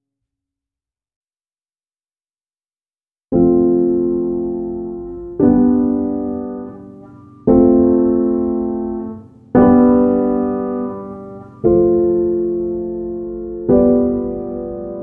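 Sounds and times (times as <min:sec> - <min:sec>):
slow piano chords: 0:03.3 - 0:15.0.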